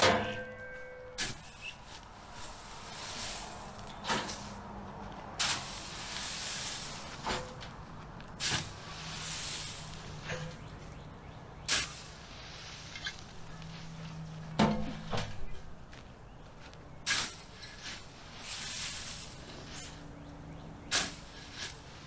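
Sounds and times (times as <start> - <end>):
shovel scooping rustling leaves: 1.2 - 4.6, 5.4 - 7.6, 8.4 - 10.4, 11.6 - 14.3, 17.0 - 20.1, 20.8 - 22.0.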